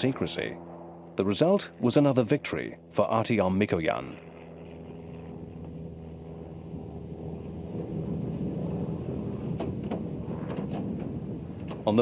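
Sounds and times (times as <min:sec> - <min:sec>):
steady low hum: 0:00.0 - 0:12.0
low vehicle rumble: 0:04.2 - 0:12.0.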